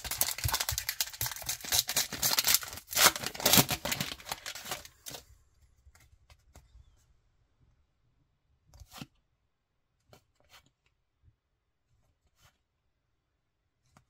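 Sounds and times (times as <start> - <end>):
plastic wrapper tearing and crinkling: 0.0 - 5.2.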